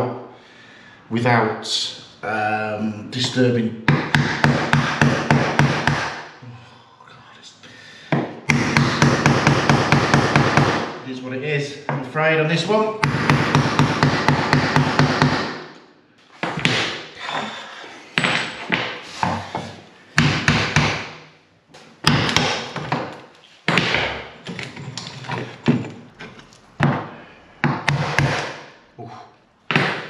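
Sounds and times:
hammer blows breaking tiles: 13.0s - 15.7s, 22.0s - 26.0s.

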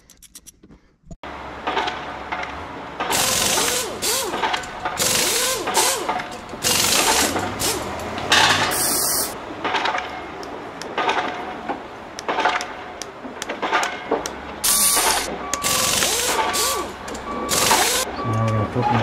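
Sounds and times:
small metal clicks: 0.0s - 0.7s
socket ratchet clicking: 14.7s - 18.1s.

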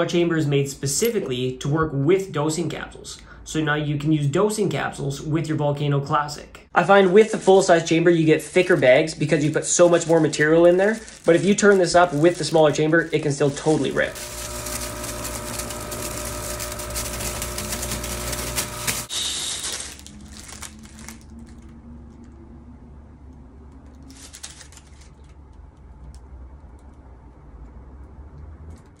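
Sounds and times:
air pump humming: 12.6s - 20.0s.

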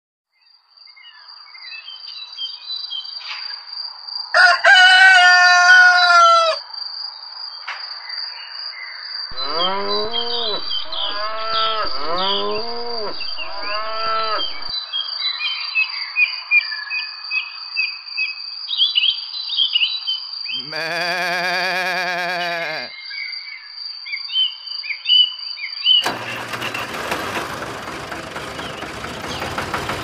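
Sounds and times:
rooster crowing: 4.3s - 6.6s, 9.4s - 14.7s, 20.6s - 22.9s
bird chirps: 9.3s - 14.7s
cattle mooing: 9.3s - 14.7s, 20.6s - 22.9s
high insect trill: 20.6s - 22.9s.

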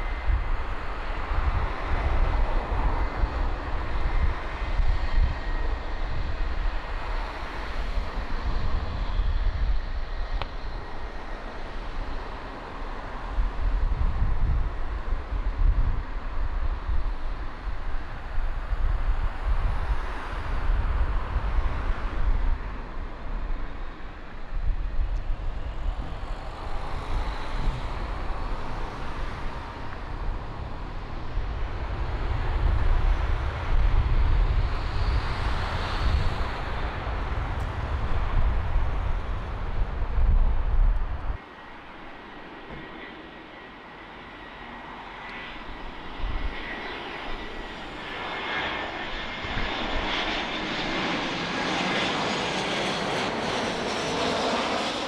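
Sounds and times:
airliner engines roaring: 0.0s - 55.0s.

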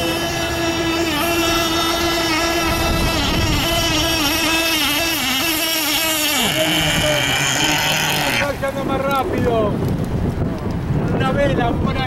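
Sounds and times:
model boat motor whining: 0.0s - 9.1s.

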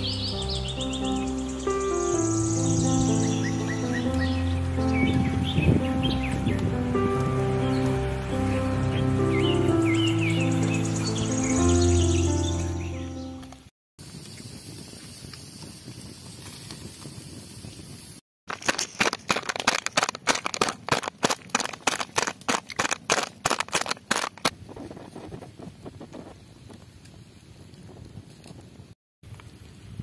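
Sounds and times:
pestle pounding garlic in plastic cup: 18.5s - 24.5s.

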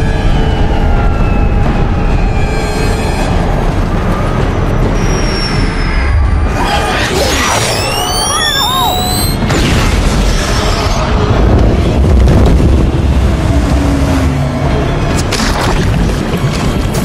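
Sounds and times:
film music: 0.0s - 17.0s
deep booming rumble: 9.4s - 17.0s.

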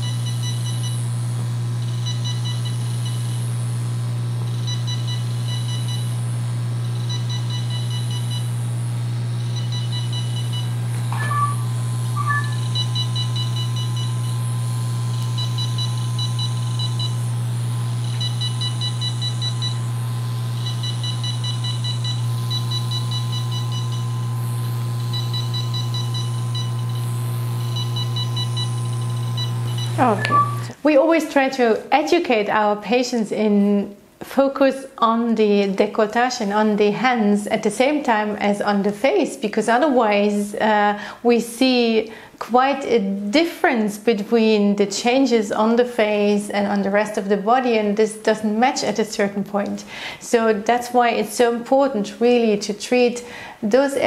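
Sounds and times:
low machine hum: 0.0s - 30.8s
rapid high laser beeps: 11.2s - 14.1s.

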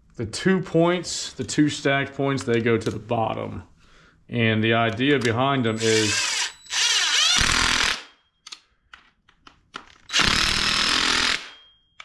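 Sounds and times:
impact driver hammering screws: 5.8s - 8.1s, 10.1s - 11.6s.

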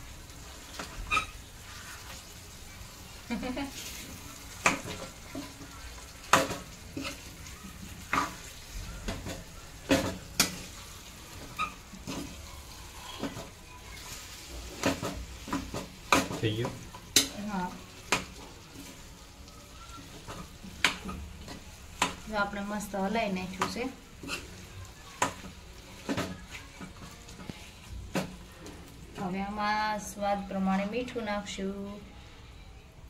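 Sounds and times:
spoon scraping and knocking pan: 4.6s - 7.3s, 7.9s - 12.4s, 14.4s - 19.0s, 23.4s - 28.8s.

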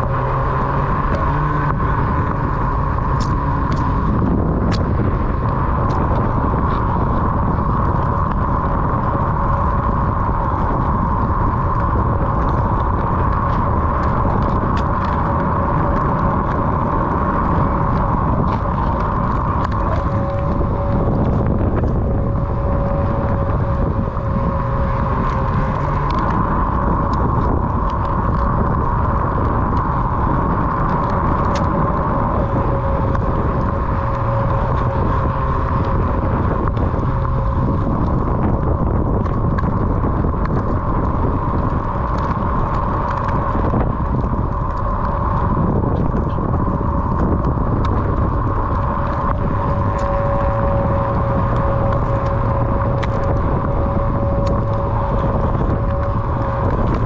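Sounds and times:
electric motor whine: 0.0s - 57.0s
low rumble: 0.0s - 57.0s
small ticks: 3.1s - 4.1s, 22.6s - 57.0s.

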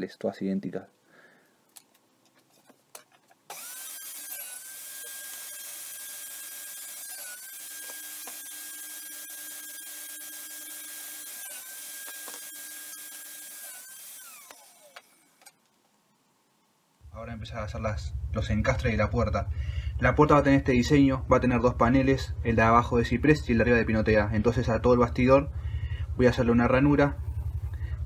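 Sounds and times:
table saw cutting wood: 3.5s - 15.4s.

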